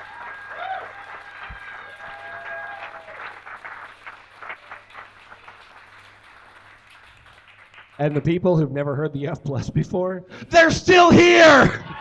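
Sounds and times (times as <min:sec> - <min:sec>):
whoops: 0:00.0 - 0:03.4, 0:11.7 - 0:12.0
audience applauding and cheering: 0:00.0 - 0:08.3.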